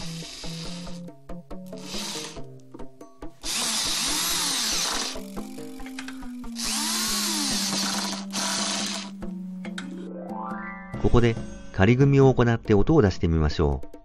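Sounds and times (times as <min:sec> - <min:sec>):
cordless drill driving screws: 0:00.0 - 0:01.0, 0:01.7 - 0:02.5, 0:03.4 - 0:05.8, 0:06.6 - 0:09.2
background music: 0:00.0 - 0:14.0.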